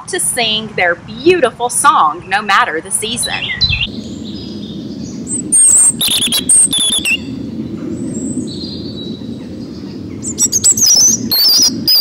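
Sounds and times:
low background hum: 0.0s - 11.9s
bird singing whistled phrases: 3.2s - 4.5s, 5.4s - 7.3s, 10.3s - 12.0s.

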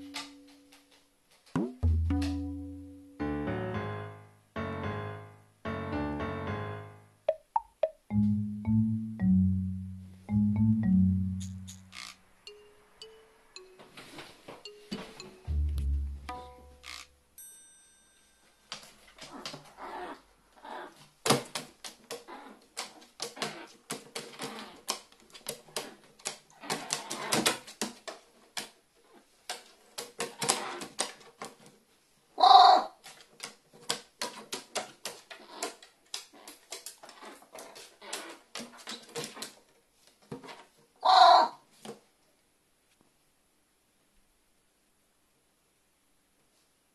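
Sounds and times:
claws and beak tapping on wood: 33.0s - 39.6s
crow cawing: 41.0s - 41.5s.

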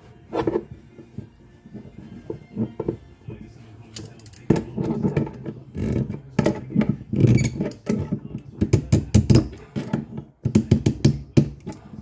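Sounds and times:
metal tool clicking on pipe fitting: 3.9s - 4.6s.

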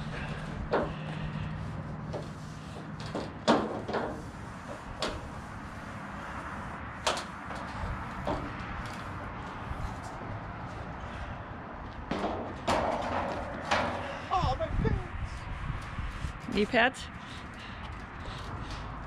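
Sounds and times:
sheet-metal panels knocking and clanking: 0.6s - 1.1s, 2.1s - 5.2s, 12.1s - 14.2s.

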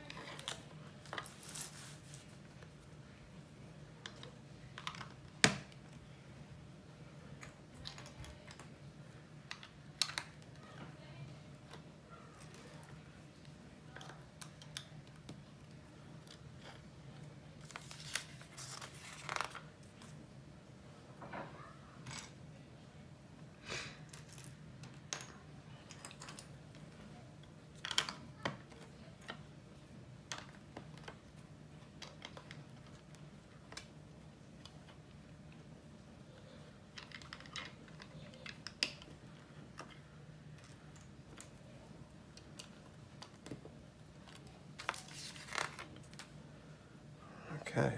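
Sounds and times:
faint low hum: 0.0s - 47.9s
plastic bricks clicking and clattering: 36.9s - 41.6s.

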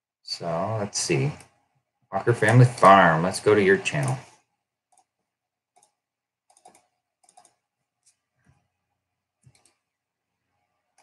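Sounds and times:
computer mouse clicking: 4.0s - 8.2s, 9.4s - 10.0s.

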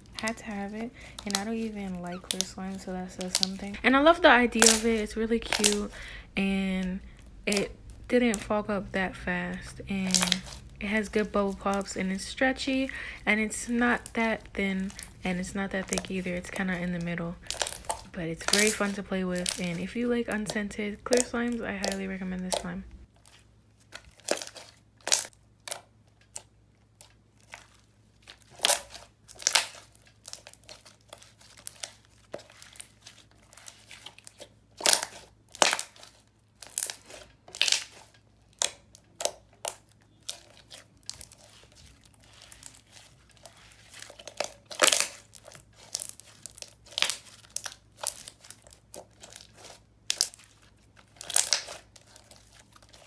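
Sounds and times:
slime sticky pops and crackles: 4.6s - 4.8s, 51.1s - 52.1s.

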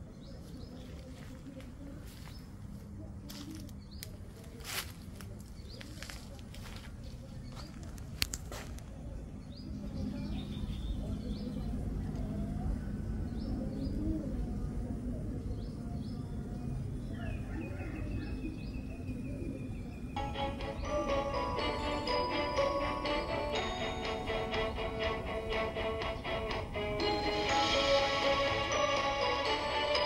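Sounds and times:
birds chirping: 0.0s - 8.2s, 8.8s - 30.0s
low outdoor rumble: 0.0s - 30.0s
steady high tone: 20.2s - 30.0s.

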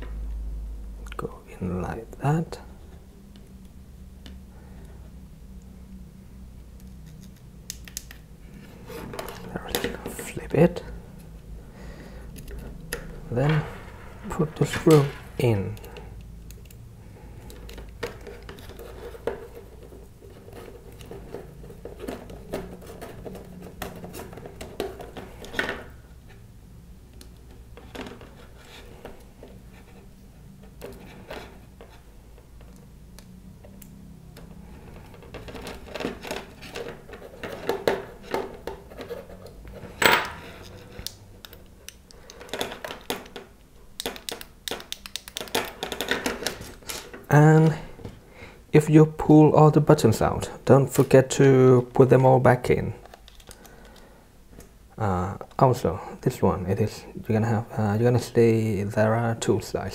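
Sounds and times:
clicks and scrapes on plastic: 40.5s - 47.1s.

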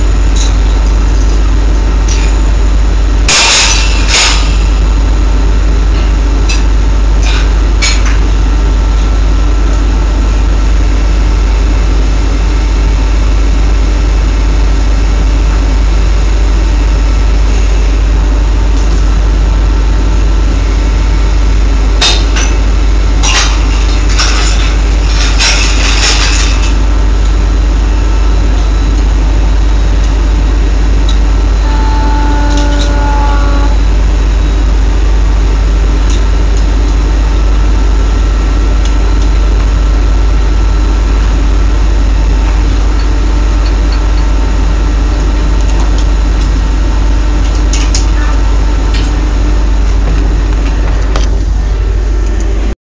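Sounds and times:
machinery low drone: 0.0s - 52.8s
short pitched tone: 31.3s - 34.8s.

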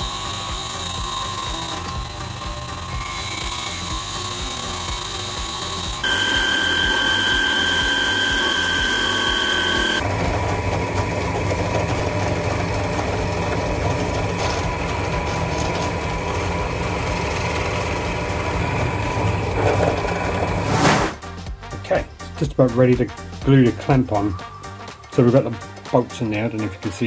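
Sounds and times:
belt and disc sander whining: 0.0s - 20.6s
drill press boring into plywood: 0.0s - 20.6s.

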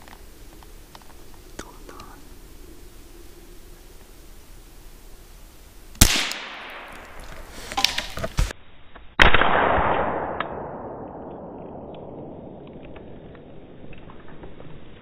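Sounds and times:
gunshots echoing through woods: 6.0s - 7.9s, 9.1s - 13.7s.

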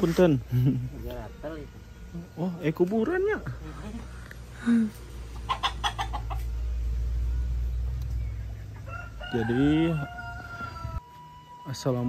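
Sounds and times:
low steady rumble: 0.3s - 9.2s
chickens clucking: 5.2s - 6.9s.

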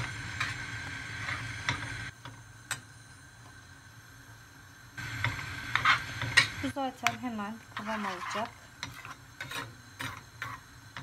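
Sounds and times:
spoon stirring thick oatmeal: 7.0s - 11.0s.

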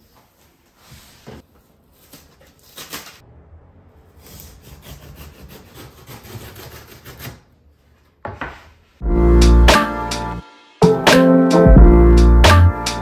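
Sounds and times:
utility knife slicing cardboard: 4.2s - 7.5s
cardboard rubbing and scraping: 4.3s - 7.4s
loud music: 9.0s - 13.0s.

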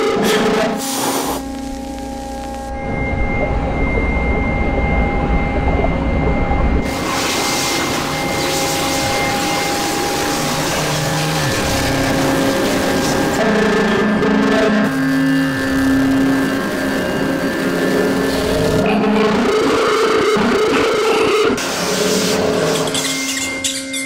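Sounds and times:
held drone tones: 0.0s - 24.0s
loud hiss: 0.8s - 1.6s
heavy deep rumble: 1.4s - 19.6s.

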